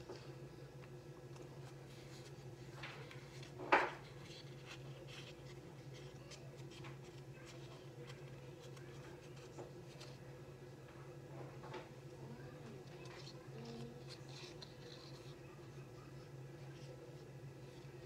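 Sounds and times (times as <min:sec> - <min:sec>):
steady low hum: 0:00.0 - 0:18.0
fingers rubbing foam: 0:12.7 - 0:15.4.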